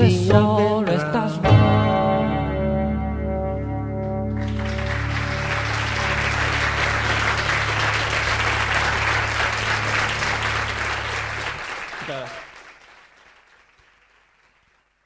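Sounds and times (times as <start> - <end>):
audience applauding: 4.4 - 15.0.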